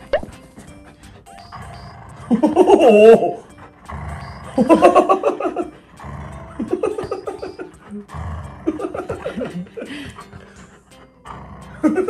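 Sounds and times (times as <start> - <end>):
dog growling: 0.7 - 12.0
man laughing: 2.4 - 3.4, 4.6 - 5.8, 8.7 - 10.2.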